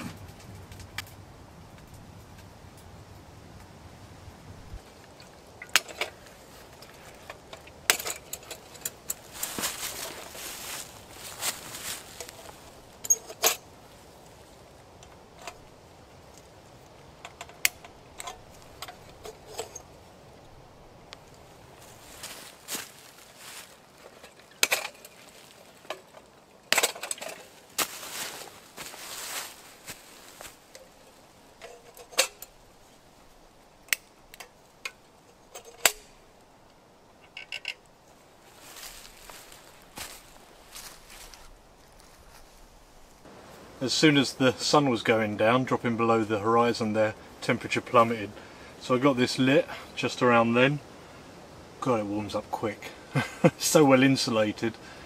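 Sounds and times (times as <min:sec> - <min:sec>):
metal lantern clicks and clinks: 0:06.8 - 0:09.3, 0:13.0 - 0:13.7, 0:24.2 - 0:25.2, 0:25.9 - 0:27.5, 0:31.6 - 0:32.6, 0:33.9 - 0:36.2, 0:37.2 - 0:37.9.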